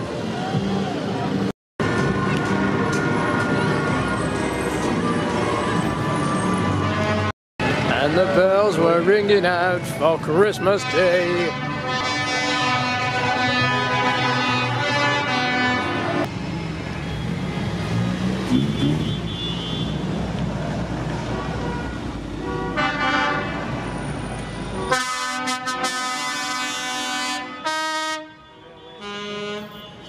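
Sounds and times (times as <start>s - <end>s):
vehicle engines running: 0.0s - 24.9s
loud vehicle horn blowing: 6.7s - 7.3s, 10.5s - 16.2s, 21.5s - 23.6s, 24.8s - 30.0s
horn toot: 10.4s - 16.3s, 24.8s - 30.0s.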